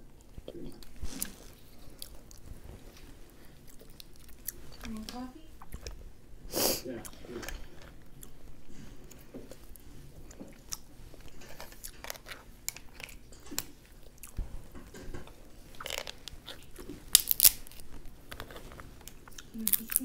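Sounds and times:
soft chewing: 0:00.0 - 0:20.0
crab shells cracking: 0:10.3 - 0:20.0.

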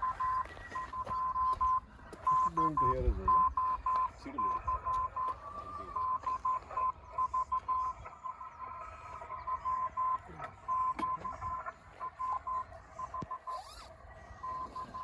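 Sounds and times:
morse code beeps: 0:00.0 - 0:15.0
radio band hiss: 0:00.0 - 0:15.0.

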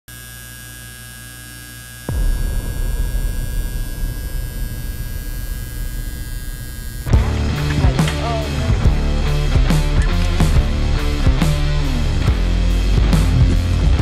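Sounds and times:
tattoo machine buzzing: 0:00.1 - 0:14.0
steady low hum: 0:02.0 - 0:14.0.

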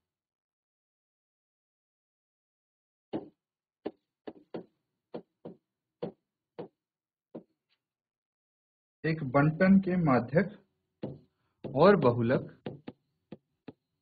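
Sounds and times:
marker tapping on whiteboard: 0:11.0 - 0:13.9.

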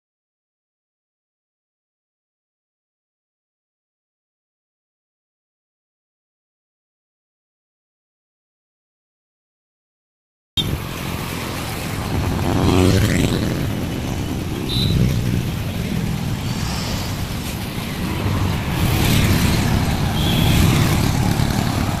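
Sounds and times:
cars passing: 0:10.6 - 0:22.0
motorcycles passing: 0:10.6 - 0:22.0.

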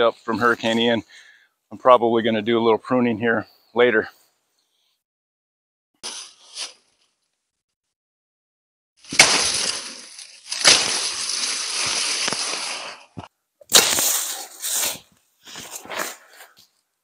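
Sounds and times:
foliage crackling and rushing: 0:09.1 - 0:13.3
machete chopping stalks: 0:09.1 - 0:14.3.

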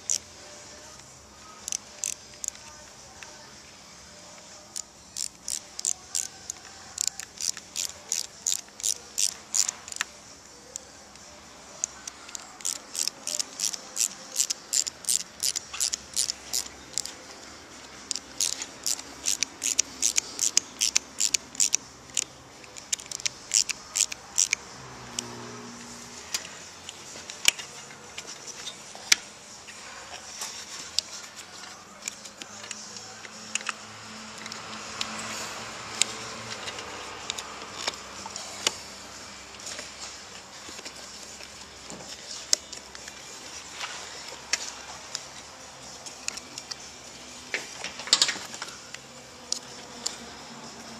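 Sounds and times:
ratchet driver clicking: 0:00.0 - 0:00.3, 0:01.0 - 0:03.3, 0:04.7 - 0:10.1, 0:11.8 - 0:17.2, 0:18.0 - 0:25.3, 0:32.0 - 0:35.3, 0:35.9 - 0:38.8.

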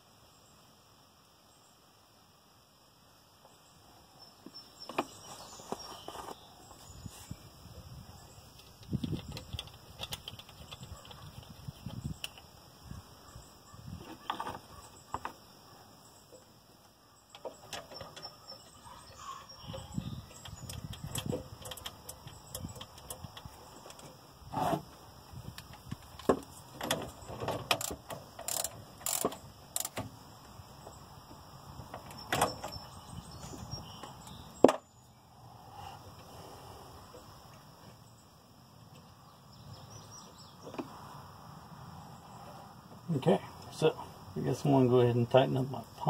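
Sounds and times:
hand tools and metal parts clicking: 0:08.5 - 0:12.5, 0:17.3 - 0:24.2, 0:25.5 - 0:30.1.

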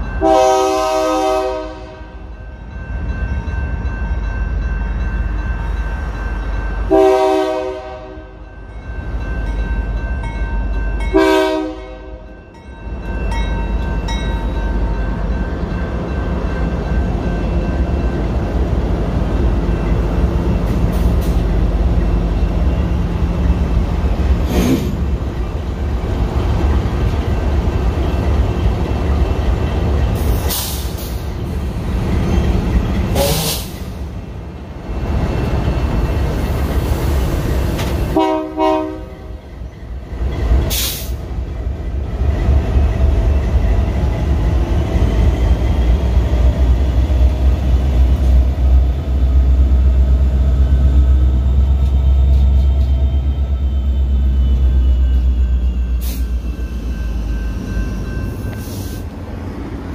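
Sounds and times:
freight train rumbling: 0:00.0 - 0:59.9
locomotive horn: 0:00.2 - 0:02.3, 0:06.9 - 0:08.4, 0:11.1 - 0:12.3, 0:38.1 - 0:39.4.

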